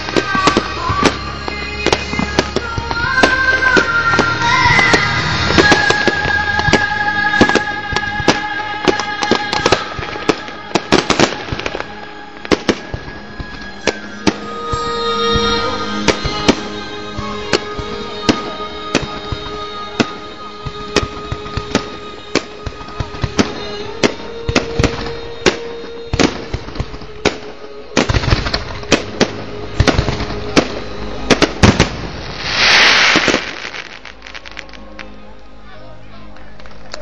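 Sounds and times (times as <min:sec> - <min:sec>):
firework bursts and bangs: 0:00.0 - 0:34.8
loud hissing rush: 0:31.6 - 0:34.4.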